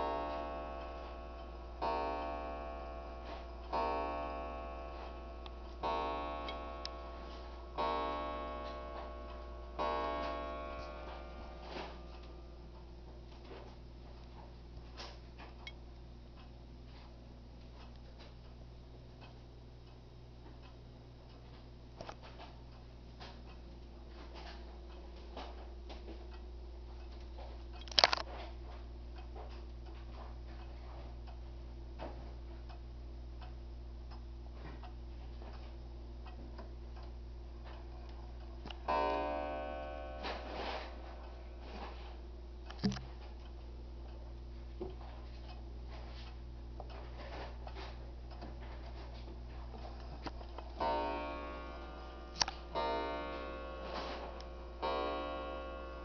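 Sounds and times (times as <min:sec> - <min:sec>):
clock striking: 0:00.0 - 0:13.6, 0:37.0 - 0:43.5, 0:50.2 - 0:56.0
wall clock ticking: 0:00.0 - 0:56.0
sharp click: 0:42.7 - 0:43.1.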